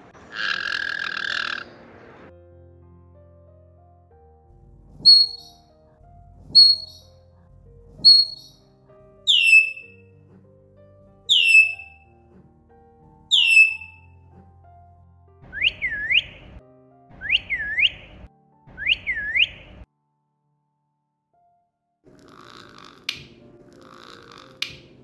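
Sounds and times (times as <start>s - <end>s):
soft background music: 0.0s - 20.2s, 21.4s - 25.0s
parrot squeaky two-note chirps: 5.0s - 5.6s, 6.6s - 7.0s, 8.0s - 8.6s, 9.3s - 10.0s, 11.3s - 12.0s, 13.3s - 14.1s, 15.6s - 16.4s
parrot whistles falling in pitch: 5.0s - 5.6s, 6.6s - 7.0s, 8.0s - 8.5s, 9.3s - 10.0s, 11.3s - 11.9s, 13.3s - 14.0s, 15.5s - 16.6s, 17.2s - 18.2s, 18.8s - 19.8s.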